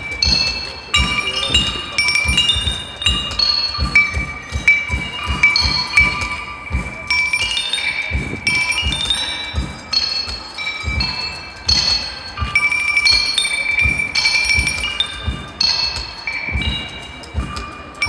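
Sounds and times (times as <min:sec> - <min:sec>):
chime-like metallic clinks: 0:00.0 - 0:18.0.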